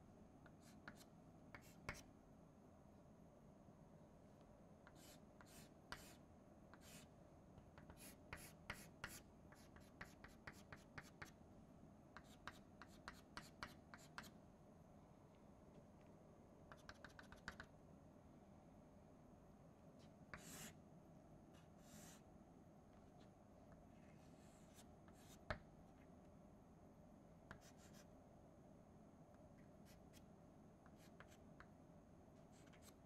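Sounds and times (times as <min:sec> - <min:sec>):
chalk tapping and scratching: 0:00.5 - 0:02.1, 0:04.9 - 0:07.1, 0:07.7 - 0:11.4, 0:12.2 - 0:14.4, 0:16.7 - 0:17.7, 0:20.3 - 0:20.8, 0:24.2 - 0:25.6, 0:27.5 - 0:28.1, 0:30.8 - 0:31.7, 0:32.5 - 0:33.0.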